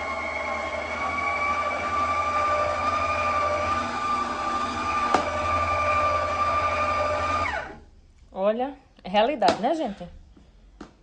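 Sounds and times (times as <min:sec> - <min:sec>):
stand mixer motor whining: 0:00.0 - 0:07.8.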